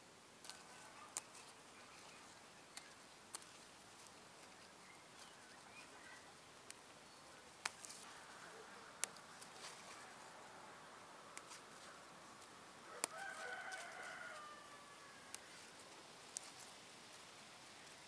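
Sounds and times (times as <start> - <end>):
faint bird chirps: 4.4 - 6.4.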